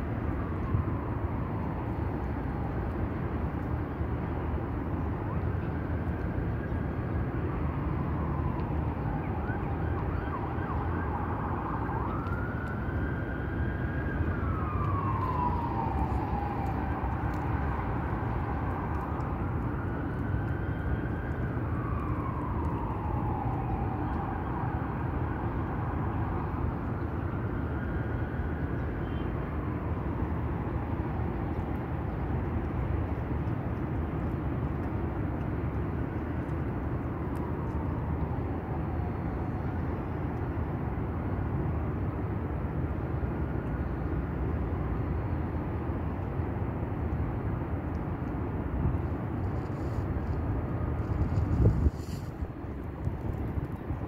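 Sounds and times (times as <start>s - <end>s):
low rumble of city traffic: 0.0s - 54.0s
siren wailing: 5.2s - 29.2s.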